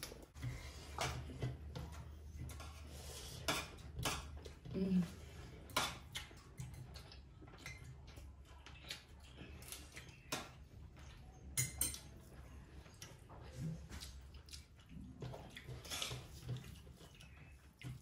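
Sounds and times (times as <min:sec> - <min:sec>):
spoon clinking on metal plate: 0:11.6 - 0:12.1.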